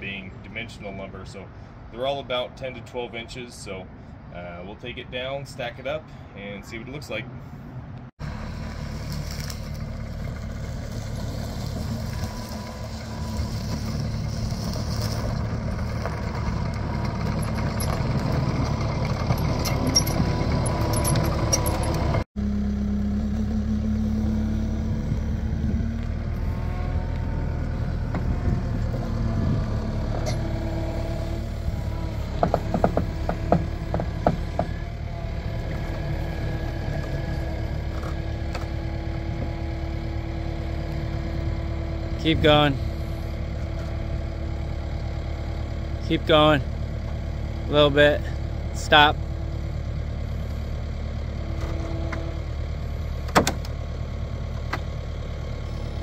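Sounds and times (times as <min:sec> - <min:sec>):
track loader engine running: 0:08.2 - 0:56.0
rattling knocks: 0:32.3 - 0:34.8.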